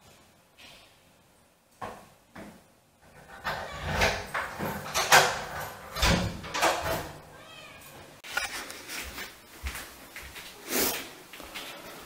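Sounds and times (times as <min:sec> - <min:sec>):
cats meowing loudly: 0:07.3 - 0:08.1.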